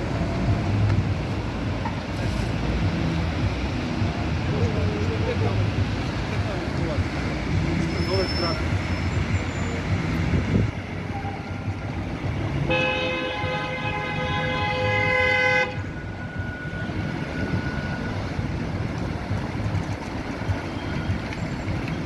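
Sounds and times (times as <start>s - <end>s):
city road traffic: 0.0s - 22.0s
vehicle horn: 12.6s - 15.9s.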